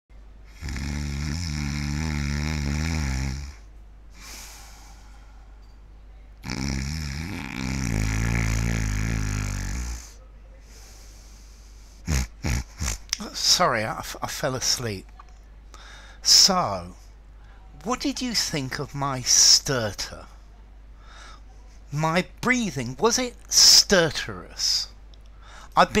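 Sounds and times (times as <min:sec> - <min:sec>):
man snoring loudly: 0:00.5 - 0:03.7, 0:06.4 - 0:10.2, 0:12.0 - 0:13.2.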